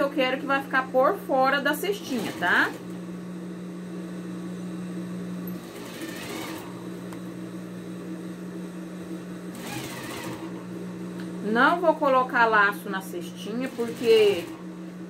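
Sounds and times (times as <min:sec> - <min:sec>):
sewing machine running: 0:01.7 - 0:02.9, 0:05.5 - 0:06.8, 0:09.5 - 0:10.7, 0:13.4 - 0:14.8.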